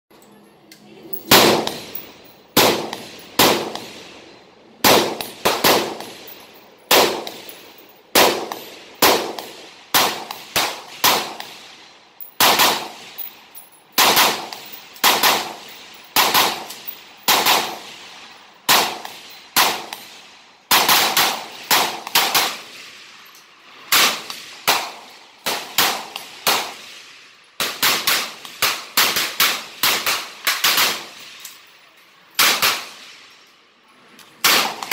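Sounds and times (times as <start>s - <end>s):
rifle shots with short echo: 1.3s - 11.7s, 12.4s - 13.3s, 14.0s - 23.0s.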